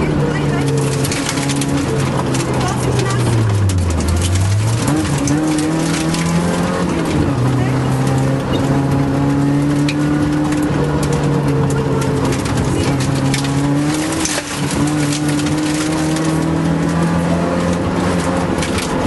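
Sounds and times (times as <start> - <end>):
car engine revving from inside: 0.0 - 19.0
gravel rattling against car: 0.0 - 19.0.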